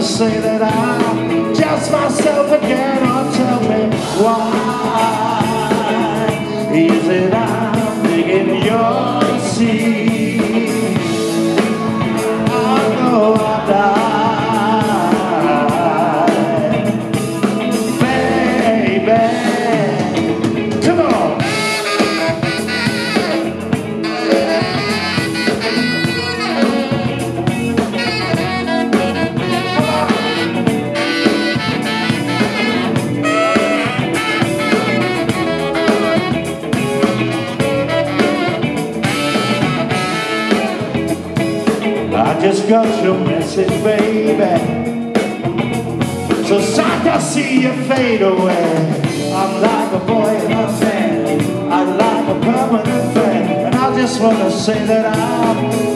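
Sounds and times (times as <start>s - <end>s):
bass guitar: 0.0s - 55.9s
drums: 0.0s - 55.9s
electric guitar: 0.0s - 55.9s
saxophone solo: 20.0s - 42.1s.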